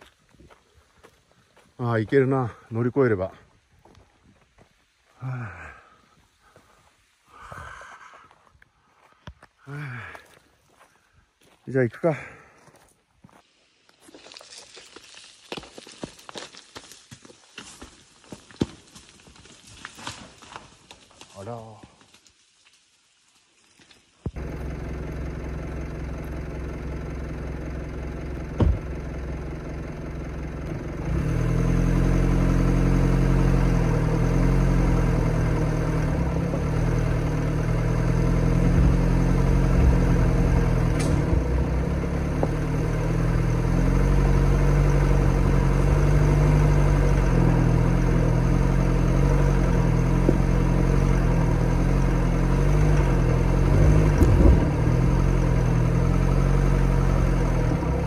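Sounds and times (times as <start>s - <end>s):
diesel engine working at low speed: 24.3s - 58.0s.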